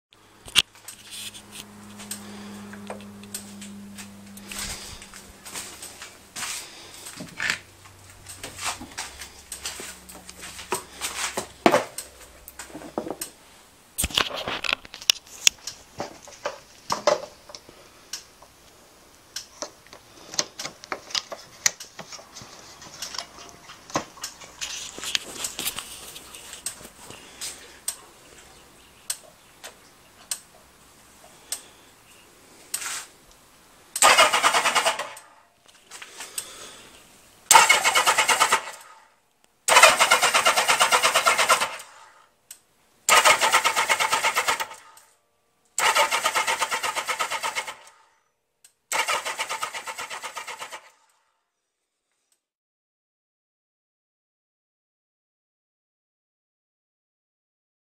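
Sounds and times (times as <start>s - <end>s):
motorcycle electric starter cranking: 0.5s - 13.4s, 34.0s - 35.4s, 37.5s - 39.0s, 39.7s - 42.2s, 43.1s - 45.0s, 45.8s - 48.0s, 48.9s - 50.9s.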